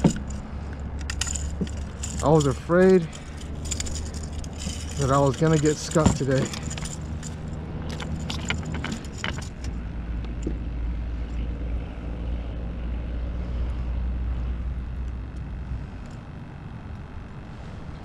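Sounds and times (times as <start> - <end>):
fishing rig clicks and rattles: 0.0 - 10.5
low engine drone: 0.0 - 18.0.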